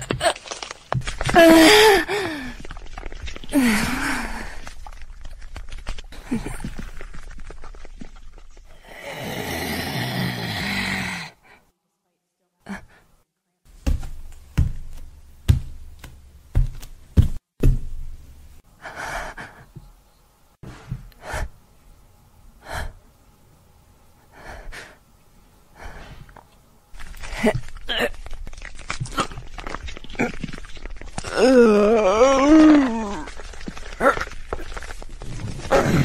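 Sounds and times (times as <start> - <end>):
woman gasping and breathing heavily: 1.3 - 2.6, 3.5 - 4.7
woman groaning: 31.2 - 33.3.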